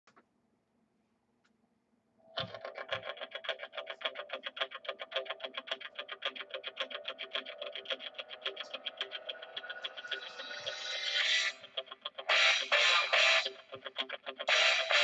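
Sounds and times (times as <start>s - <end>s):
fast pulsing intro music: 7.2s - 13.6s.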